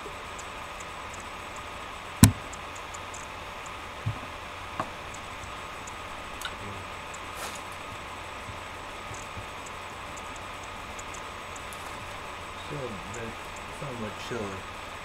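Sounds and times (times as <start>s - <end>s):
steady background hiss: 0.0s - 15.0s
loud sharp knock: 2.2s - 2.4s
faint thumps: 2.2s - 2.6s.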